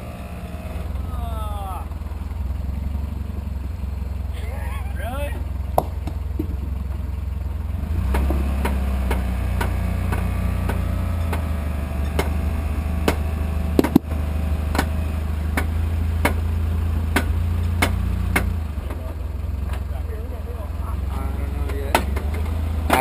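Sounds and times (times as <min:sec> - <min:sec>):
truck engine at low speed: 0:00.0 - 0:23.0
sharp knock: 0:13.8 - 0:14.1.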